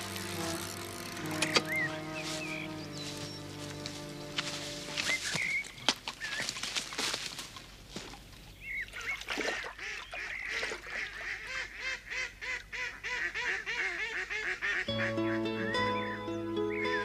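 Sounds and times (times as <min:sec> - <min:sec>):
background music: 0:00.0 - 0:05.2, 0:14.9 - 0:17.0
waterfowl honking: 0:09.0 - 0:17.0
high bird chirps: 0:15.6 - 0:17.0.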